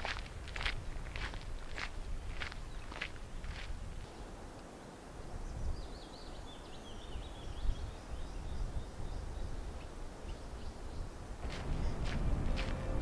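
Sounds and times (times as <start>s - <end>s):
low steady rumble: 11.4s - 13.0s.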